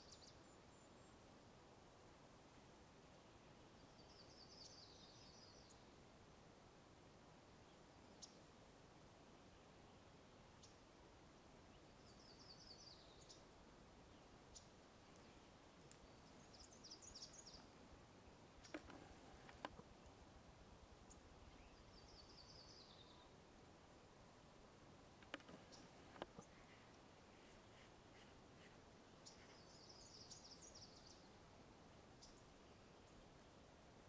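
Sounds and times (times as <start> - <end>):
faint birdsong: 0.0 - 34.0
sharp clicks: 18.6 - 19.8, 25.2 - 26.4.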